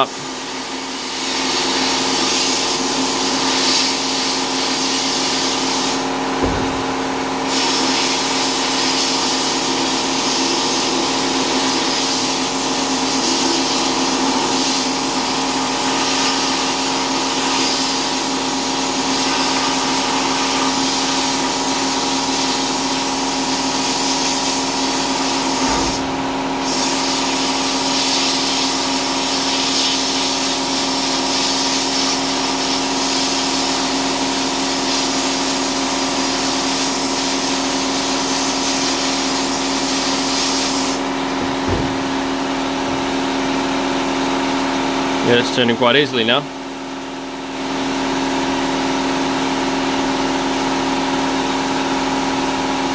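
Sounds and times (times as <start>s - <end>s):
machine hum: 0.0s - 11.8s, 40.9s - 47.4s
sandblasting air hiss: 0.5s - 43.6s.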